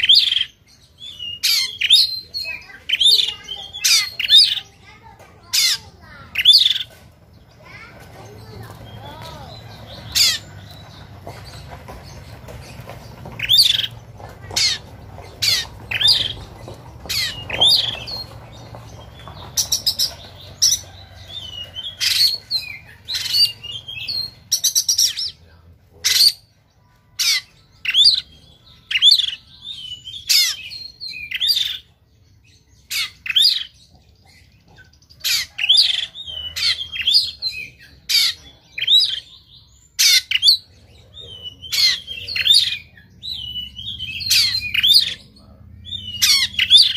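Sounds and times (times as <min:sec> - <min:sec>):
bird singing harsh notes: 0:35.2 - 0:46.9.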